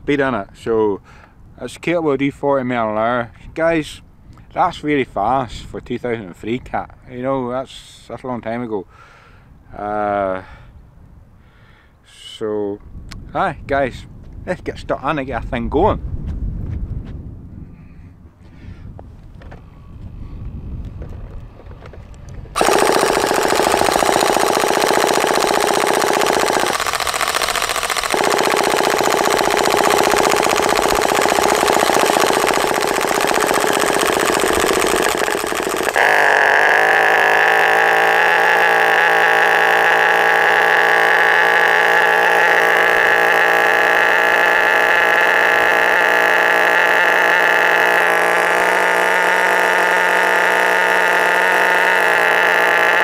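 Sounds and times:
electric starter spinning engine: 0:22.5 - 0:53.0
model engine running: 0:22.5 - 0:53.0.

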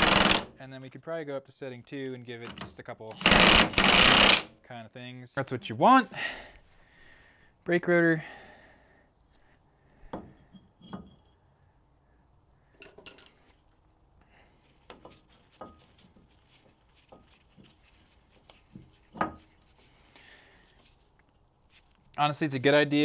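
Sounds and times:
metallic clinks and knocks: 0:10.1 - 0:11.4, 0:12.7 - 0:13.6.

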